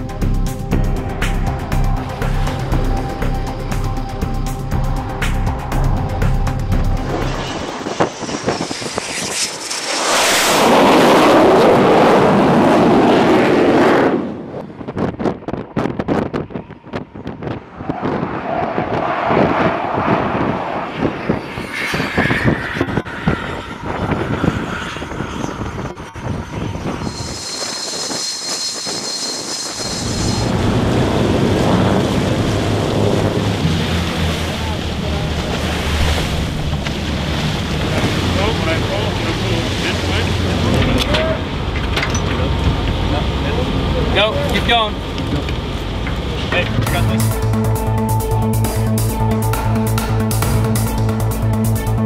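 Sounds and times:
jet engine roar: 4.7 - 15.0, 16.3 - 47.6
wind on microphone: 5.0 - 41.7
water spray and waves: 27.0 - 47.4.

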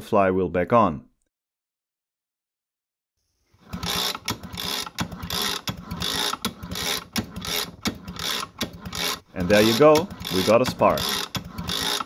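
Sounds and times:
small engine cranked by hand: 3.6 - 12.0.

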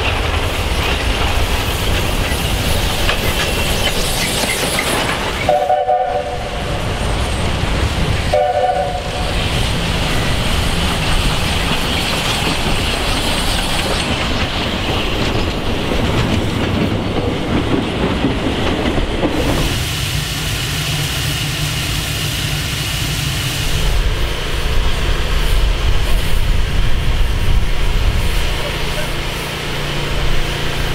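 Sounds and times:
wheels clattering over rail joints: 0.0 - 5.7, 9.8 - 19.7
train running past: 0.0 - 30.9
steam locomotive whistle: 5.5 - 6.6, 8.3 - 9.3.

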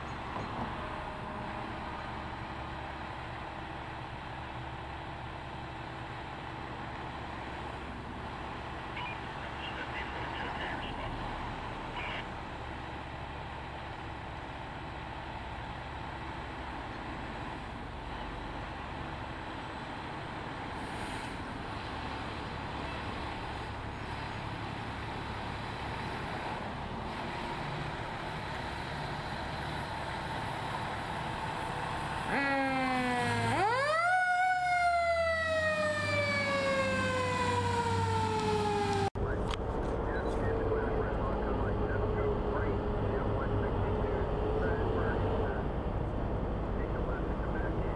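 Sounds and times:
fire engine rumbling: 0.0 - 47.9
siren wailing: 32.3 - 39.1.

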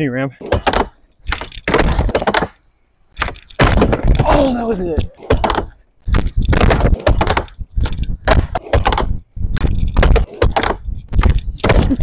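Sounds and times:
skateboard wheels rolling on plywood: 3.6 - 12.0.

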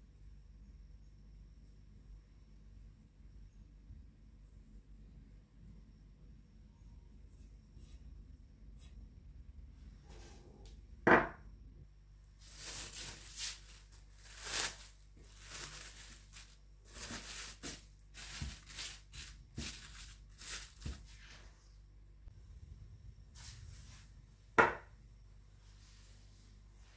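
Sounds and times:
cling film crinkling: 12.4 - 21.0.

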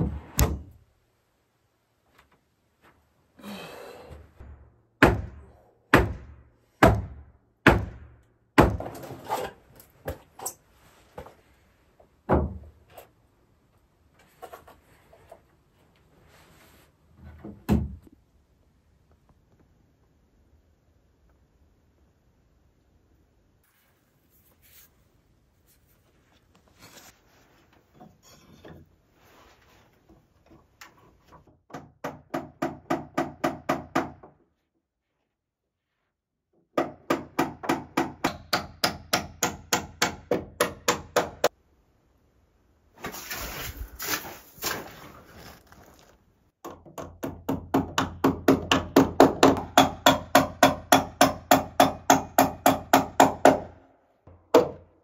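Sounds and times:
hammer striking nails: 4.4 - 9.2, 31.7 - 34.4, 36.7 - 41.5, 46.6 - 54.9.

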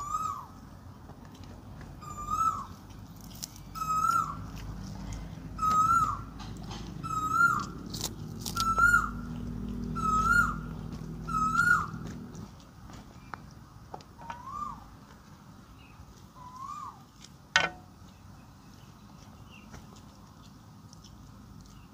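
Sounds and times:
bird whistling calls: 0.0 - 0.5, 2.0 - 2.8, 3.7 - 4.4, 5.6 - 6.3, 7.0 - 7.8, 8.5 - 9.3, 9.9 - 12.0, 14.2 - 14.9, 16.4 - 17.0.

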